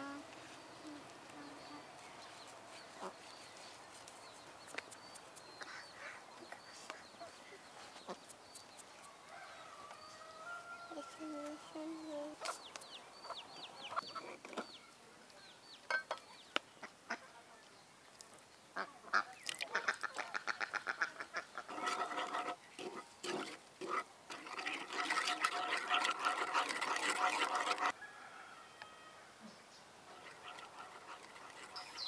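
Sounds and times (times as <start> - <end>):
poultry calling harshly: 18.8 - 22.5, 30.1 - 32.0.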